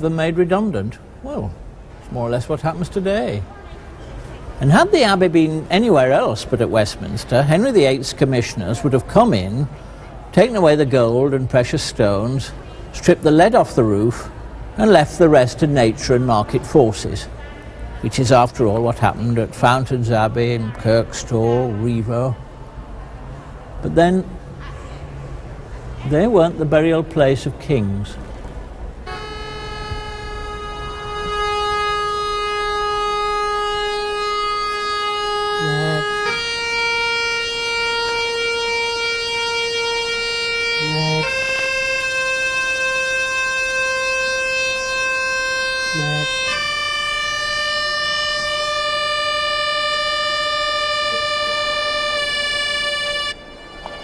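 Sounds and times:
pipe organ chord: 0:29.1 - 0:54.0.

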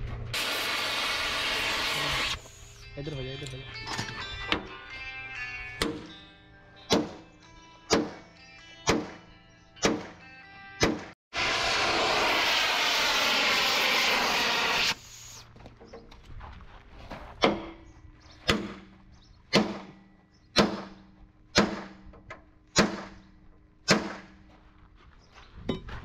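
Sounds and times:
loud rushing noise: 0:11.4 - 0:15.0.

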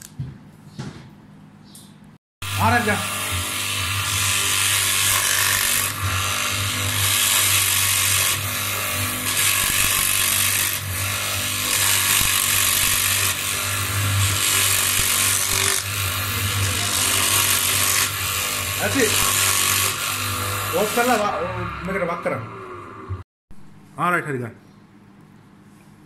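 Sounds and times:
rasping grinding noise: 0:02.4 - 0:23.2.

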